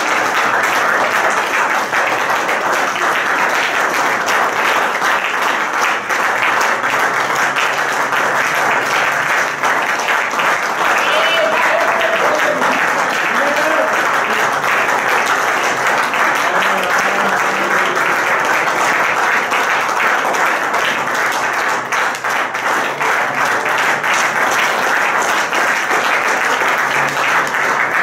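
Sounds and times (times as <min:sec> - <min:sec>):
congregation applauding: 0:00.0 - 0:28.0.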